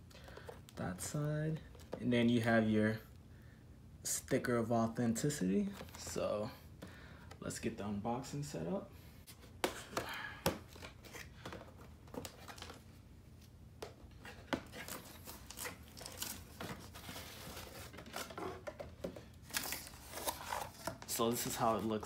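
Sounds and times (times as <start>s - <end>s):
cardboard rustling: 10.6s - 22.0s.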